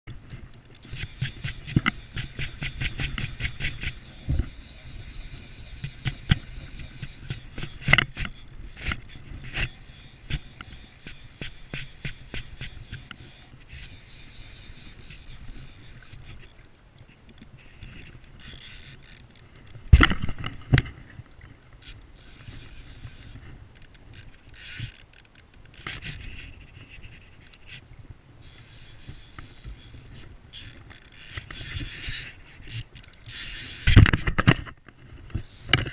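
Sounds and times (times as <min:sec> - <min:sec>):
fly reel ratchet clicking: 0:00.2 - 0:16.6, 0:17.3 - 0:19.9, 0:21.8 - 0:26.4, 0:28.4 - 0:34.2, 0:35.4 - 0:35.9.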